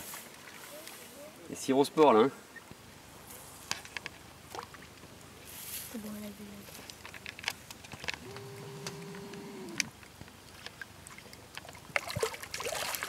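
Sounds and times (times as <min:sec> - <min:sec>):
droning tone: 0:08.2 - 0:09.9
fish splashing in water: 0:10.7 - 0:13.0.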